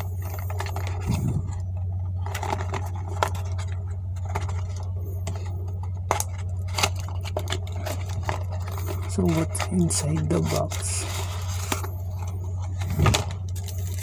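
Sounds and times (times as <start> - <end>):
steady low hum: 0.0 - 14.0
cardboard box scraping and rustling: 6.8 - 14.0.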